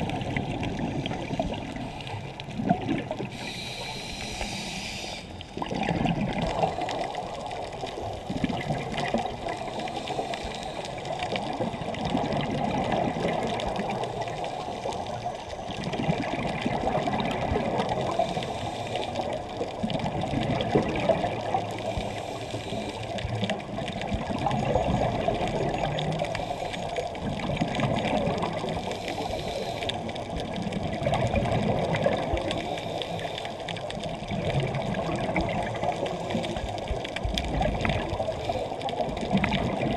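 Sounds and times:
underwater regulator bubbles: 0.0s - 39.9s.

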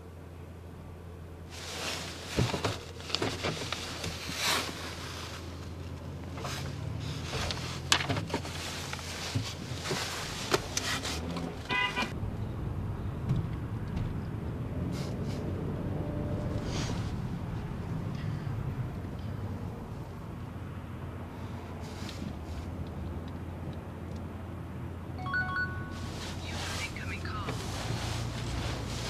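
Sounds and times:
short pitched beep: 25.2s - 26.1s.

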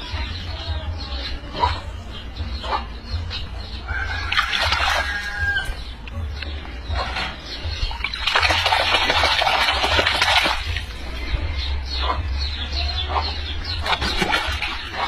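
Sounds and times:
water splashing in a basin: 4.2s - 5.7s, 7.0s - 11.2s, 13.8s - 15.0s.

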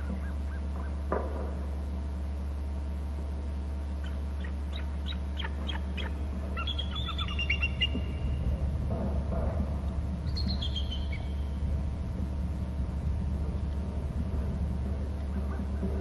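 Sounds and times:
low hum: 0.0s - 16.0s
eagle high piping calls: 4.0s - 8.4s, 10.2s - 11.6s.

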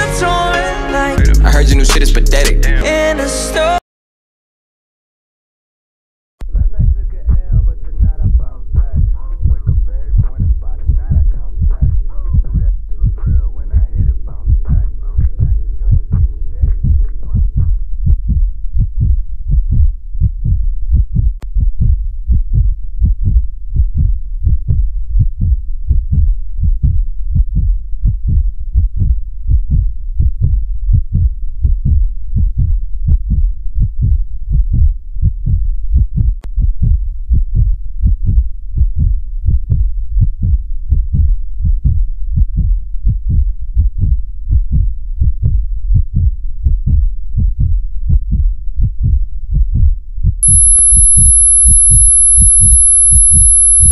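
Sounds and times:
heartbeat thumps: 1.2s - 2.8s, 6.4s - 53.9s
low held tone: 50.4s - 53.9s.

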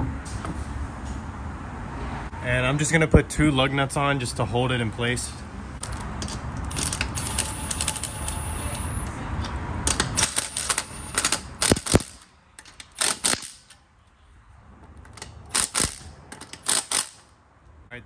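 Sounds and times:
impact wrench spinning lug nut: 5.8s - 8.4s, 9.8s - 13.8s, 15.1s - 17.4s
impact wrench hammering clatter: 9.4s - 13.9s, 14.8s - 17.4s.

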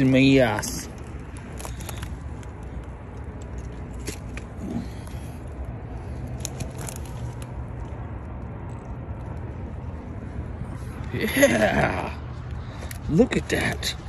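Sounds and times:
dry brush rustling and crackling: 0.0s - 5.3s, 6.0s - 11.0s
steady low rumble: 0.0s - 14.0s.

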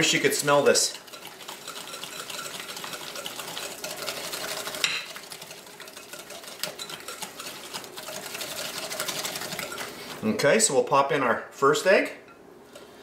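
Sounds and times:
whisk ticking against glass bowl: 0.2s - 10.2s.

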